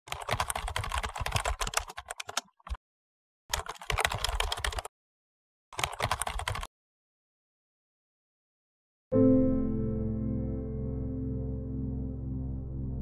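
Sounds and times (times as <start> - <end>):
keyboard typing clicks: 0.1 - 2.8, 3.5 - 4.9, 5.8 - 6.7.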